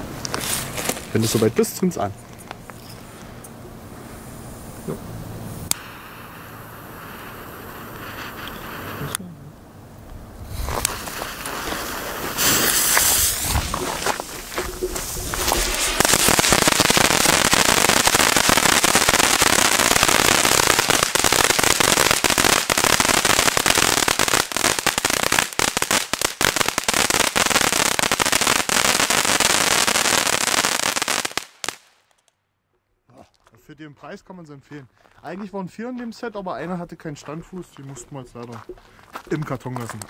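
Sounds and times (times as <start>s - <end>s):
fireworks fountain hissing: 4.0s - 9.2s, 10.4s - 31.8s
fireworks fountain crackling: 4.4s - 9.2s, 10.5s - 32.1s.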